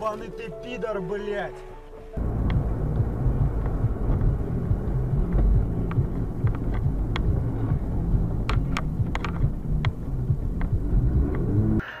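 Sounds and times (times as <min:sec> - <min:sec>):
sharp ticks and clicks: 0:02.2 - 0:11.6
car driving low rumble: 0:02.2 - 0:11.8.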